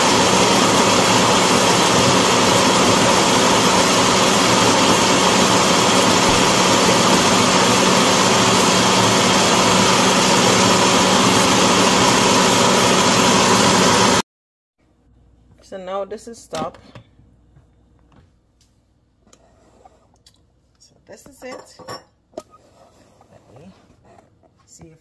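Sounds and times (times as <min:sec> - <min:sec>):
blender running: 0:00.0 - 0:14.2.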